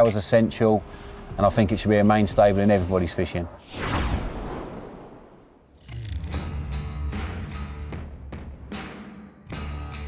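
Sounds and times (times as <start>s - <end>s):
background music with drum beat: 6.8s - 10.0s.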